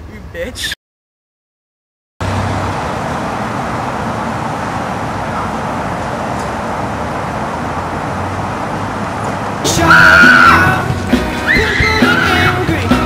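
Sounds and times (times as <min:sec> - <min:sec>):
street traffic noise: 0:00.0 - 0:00.8, 0:02.2 - 0:13.0.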